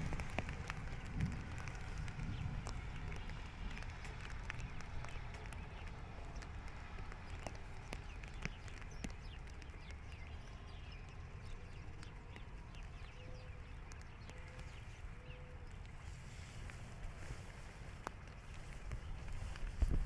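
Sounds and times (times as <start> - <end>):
raindrops tapping on plastic hood: 0.0 - 16.0
low steady rumble: 0.0 - 20.0.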